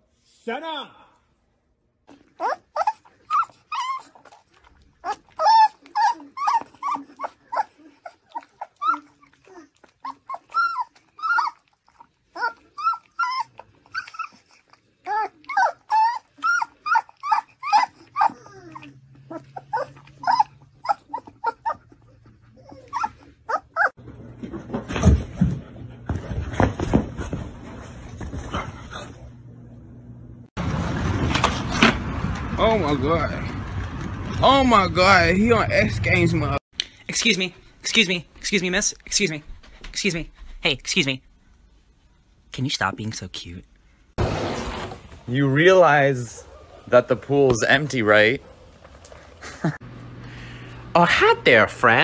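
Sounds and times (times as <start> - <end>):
puppy whiny squeaks: 2.2 - 24.0
rough rushing noise with thumps: 44.2 - 49.4.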